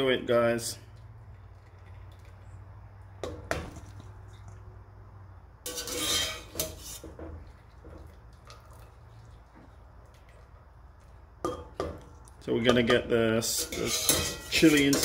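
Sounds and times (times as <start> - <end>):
wire strainer clinking on steel pot: 12.6 - 15.0.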